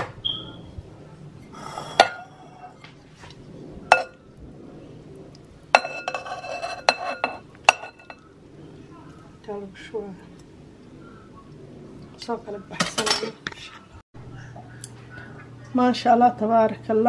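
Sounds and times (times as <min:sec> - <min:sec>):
metal spoon clinking on glass bowl: 0:05.8 - 0:08.2
glass ringing: 0:06.9 - 0:08.2.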